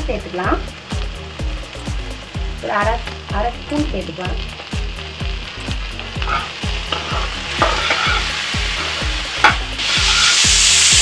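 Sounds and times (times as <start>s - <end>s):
oil sizzling: 0.0s - 11.0s
spatula scraping a pan: 6.2s - 10.5s.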